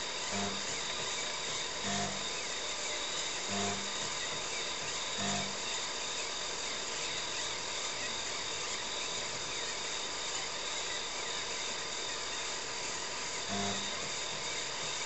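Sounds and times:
floppy disk drive whirring: 0.0s - 15.0s
short low buzz: 0.3s - 0.8s, 1.8s - 2.4s, 3.5s - 4.0s, 5.2s - 5.7s, 13.5s - 14.0s.

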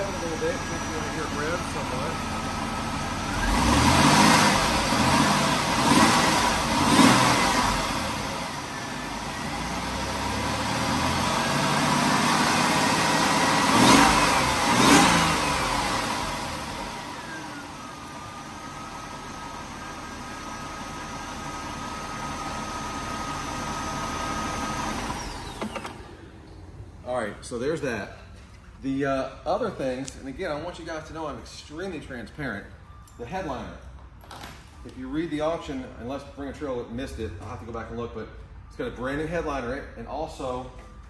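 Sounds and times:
car engine revving and idling: 0.0s - 27.1s.

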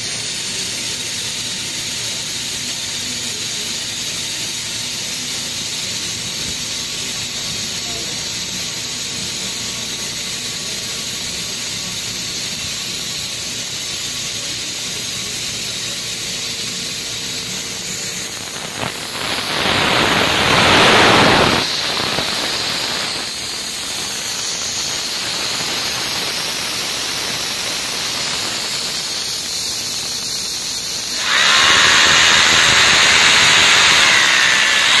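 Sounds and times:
compressed air hissing: 0.0s - 35.0s
hammer drill boring into wall: 18.4s - 35.0s.

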